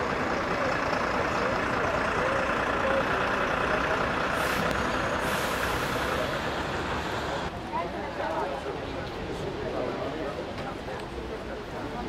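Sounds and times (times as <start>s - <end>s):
diesel vehicle idling: 0.0s - 7.6s
air hiss: 4.4s - 6.4s.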